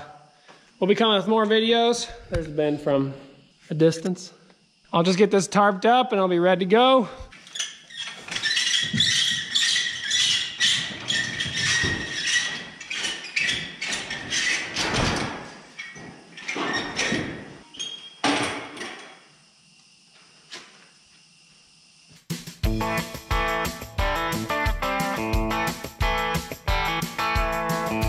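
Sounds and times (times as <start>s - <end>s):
thin squeal: 7.4s - 14.6s.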